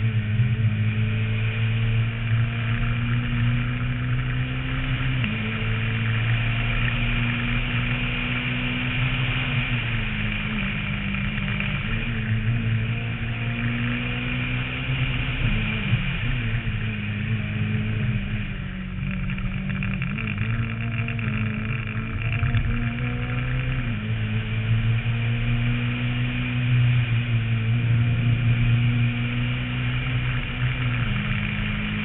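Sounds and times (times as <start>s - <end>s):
car engine pulling hard: 0.0s - 32.0s.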